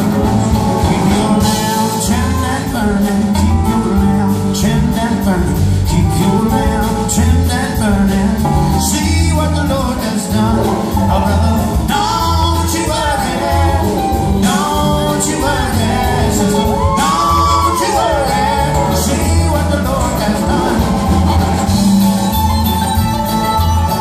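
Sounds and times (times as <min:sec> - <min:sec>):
acoustic guitars: 0:00.0 - 0:24.0
drums: 0:00.0 - 0:24.0
electric bass: 0:00.0 - 0:24.0
mandolin: 0:00.0 - 0:24.0
woman singing: 0:12.8 - 0:20.7.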